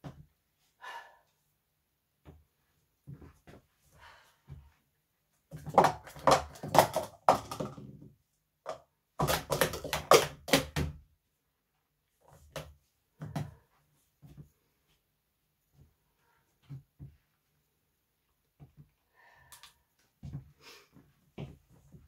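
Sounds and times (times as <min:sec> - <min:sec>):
plastic cups clattering: 0:05.5 - 0:11.0.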